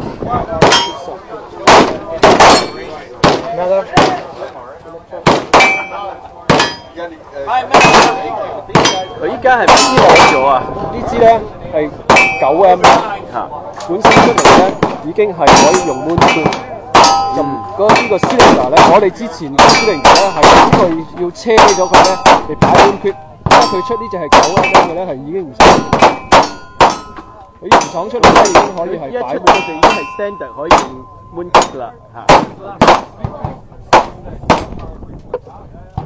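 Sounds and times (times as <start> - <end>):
steel targets clanging: 0.6 - 1.1, 2.2 - 3.0, 5.6 - 7.0, 7.7 - 10.9, 12.1 - 13.1, 13.9 - 25.0, 25.6 - 31.8
gunshots: 1.6 - 4.3, 5.2 - 6.8, 7.7 - 10.6, 12.1 - 13.2, 14.0 - 25.0, 25.6 - 28.8, 29.4 - 34.8.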